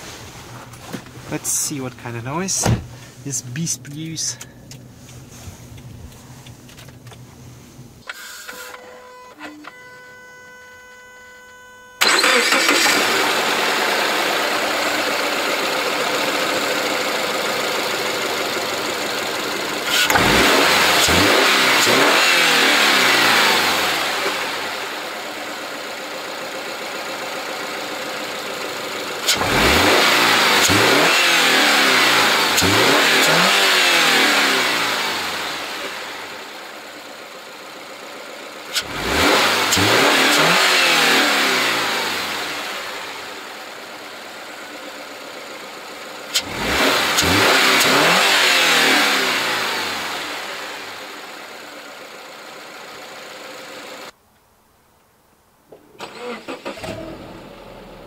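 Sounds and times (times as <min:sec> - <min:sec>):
car engine revving: 0:12.0 - 0:25.3, 0:28.5 - 0:36.6, 0:38.7 - 0:51.8.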